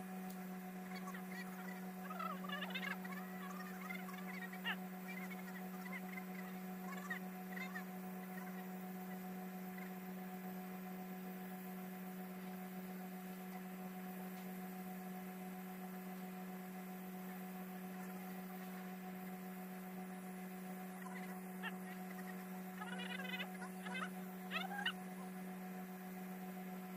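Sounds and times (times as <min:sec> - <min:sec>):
welder electrical hum: 0:00.0 - 0:26.9.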